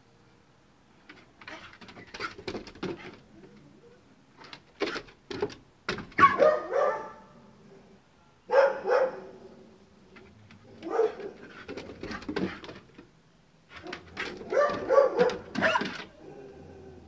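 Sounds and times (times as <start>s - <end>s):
paws running on wooden boards: 1.1s - 3.2s, 10.5s - 13.1s, 13.7s - 16.1s
dog barking: 6.2s - 7.4s, 8.5s - 9.4s, 10.8s - 11.4s, 13.9s - 15.9s.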